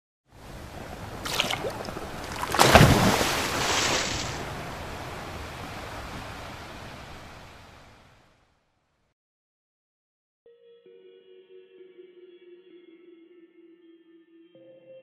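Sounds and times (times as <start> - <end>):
ocean wave crashing: 0.4 - 8.2.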